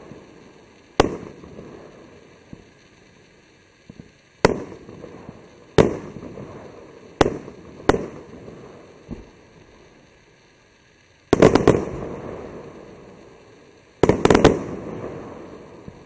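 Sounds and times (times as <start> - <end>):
firework bangs with echo: 0.0 - 2.7, 3.9 - 9.4, 11.3 - 13.2, 14.0 - 16.0
faint firework pop: 9.1 - 9.3.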